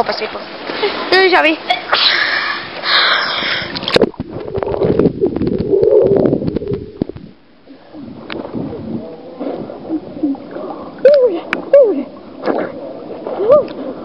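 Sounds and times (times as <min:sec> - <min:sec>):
water splashing into microphone: 0:03.4 - 0:13.8
water gurgling and bubbling: 0:03.4 - 0:14.0.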